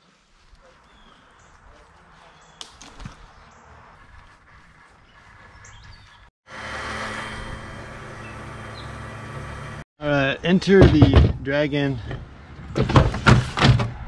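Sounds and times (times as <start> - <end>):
bird chirps: 0.6 - 6.3, 8.2 - 9.0.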